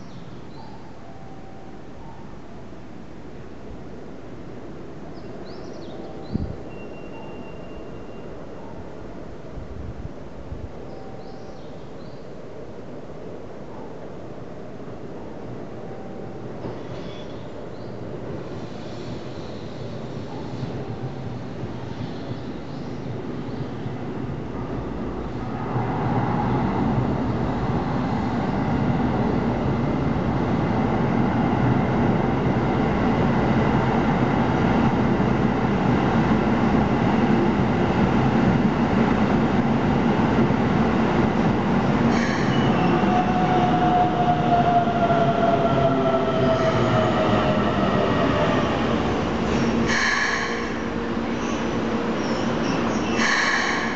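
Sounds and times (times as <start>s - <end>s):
train wheel squeals: 6.2s - 8.6s, 16.2s - 17.5s, 18.5s - 20.8s, 42.1s - 47.6s
electric train rumbling: 14.1s - 53.9s.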